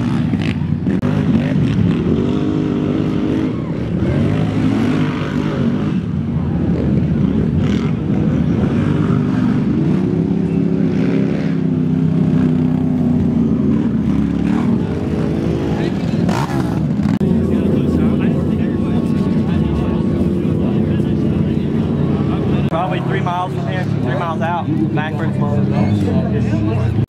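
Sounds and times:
quad engines revving past: 0.0 - 27.0.

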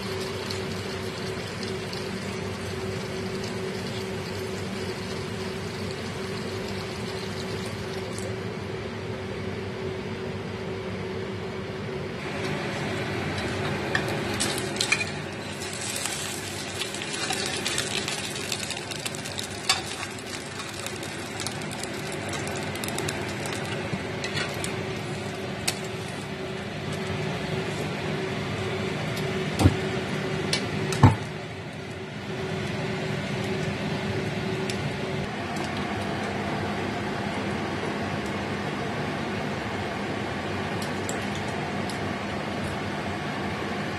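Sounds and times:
food sizzling in a wok: 14.5 - 23.3.

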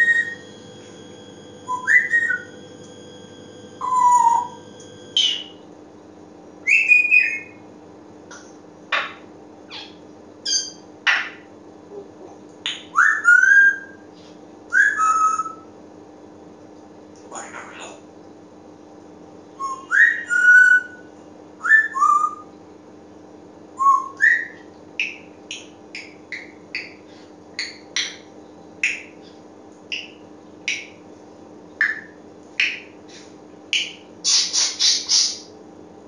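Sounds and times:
parrot whistling: 0.0 - 0.5, 1.7 - 2.6, 3.8 - 4.6, 5.2 - 5.6, 6.6 - 7.6, 9.7 - 10.8, 12.8 - 14.0, 14.7 - 15.6, 19.6 - 22.5, 23.8 - 25.2, 31.8 - 32.8, 33.8 - 35.4
parrot sharp calls: 9.0 - 11.4, 33.8 - 35.5.

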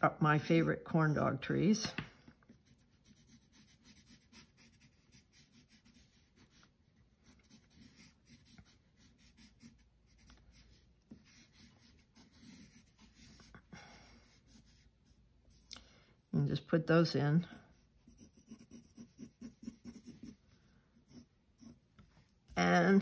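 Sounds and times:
pencil scratching on paper: 2.5 - 15.7, 17.4 - 21.9.

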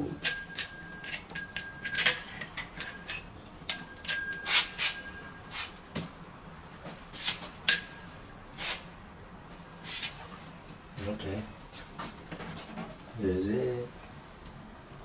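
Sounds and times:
metal faucet clinks: 0.2 - 5.5
rubbing and scraping: 3.9 - 5.8.

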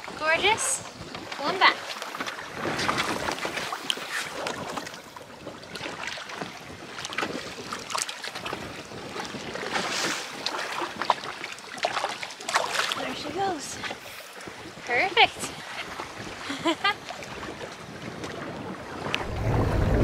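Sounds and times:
water sloshing against boat: 0.0 - 20.0
wind on microphone: 13.1 - 20.0.

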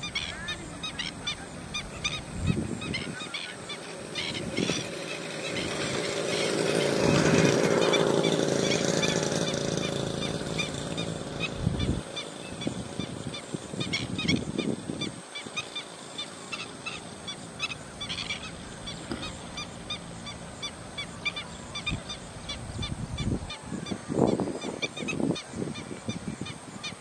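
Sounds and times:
low rumbles: 4.0 - 15.2.

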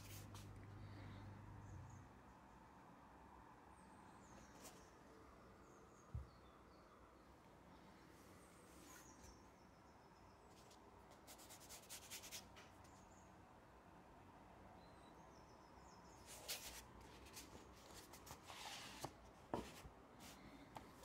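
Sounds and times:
cardboard rustling and scraping: 16.3 - 20.4.

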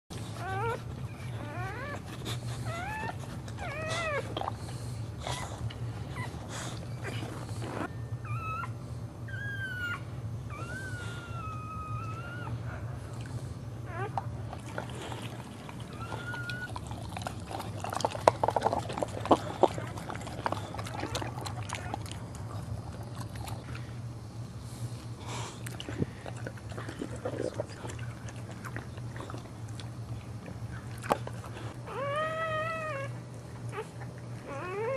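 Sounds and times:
steady low hum: 0.1 - 34.9
dog whining: 0.2 - 4.6, 5.2 - 13.0, 13.8 - 23.8, 30.7 - 34.9.

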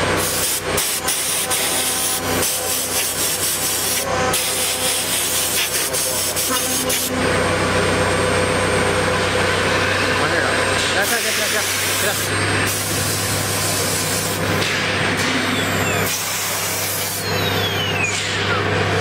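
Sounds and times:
air blow gun hissing: 0.0 - 7.2, 11.0 - 14.6, 16.0 - 17.3
cnc router milling steel: 0.0 - 19.0.

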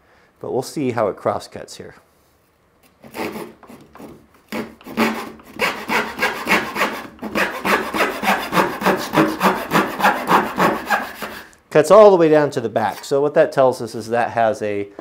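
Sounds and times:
hand saw cutting wood: 3.0 - 11.6.

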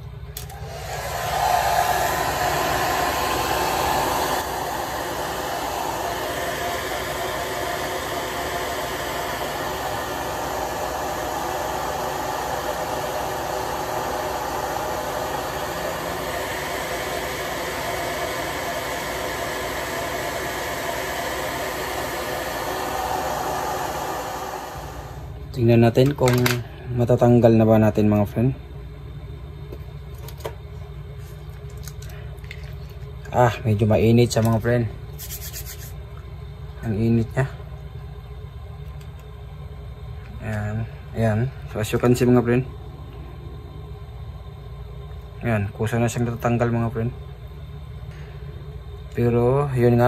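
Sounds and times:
hot-air gun blowing: 0.4 - 25.4.

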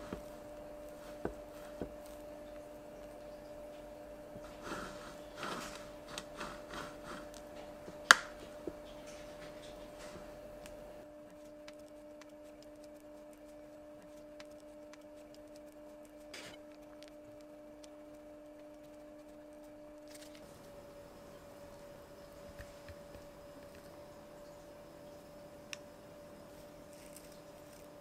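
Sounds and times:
spatula scraping cream: 0.0 - 2.7, 4.3 - 20.5
low electrical hum: 0.0 - 28.0.

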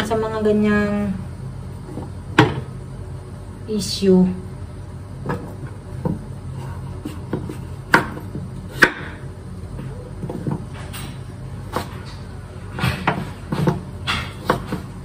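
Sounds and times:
knife chopping on cutting board: 7.0 - 9.2, 14.4 - 14.9.

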